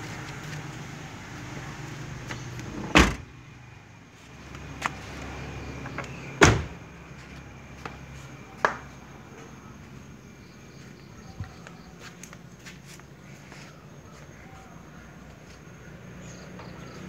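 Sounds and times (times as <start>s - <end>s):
car door slamming: 2.7s - 3.3s, 6.4s - 6.8s
light door thuds: 2.8s - 3.3s, 6.4s - 6.8s.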